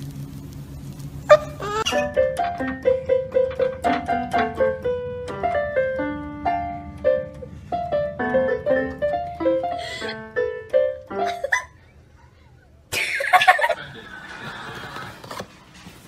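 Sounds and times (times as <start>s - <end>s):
electronic keyboard melody: 1.9s - 11.5s.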